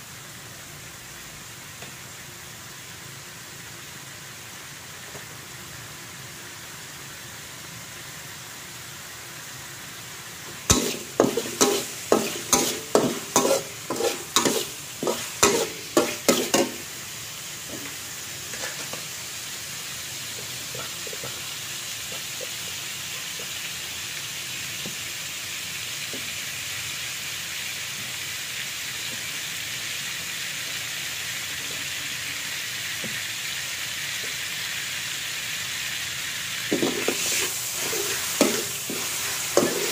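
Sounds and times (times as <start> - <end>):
meat sizzling: 0.0 - 39.9
metal spatula scraping a wok: 10.7 - 16.9, 36.7 - 39.9.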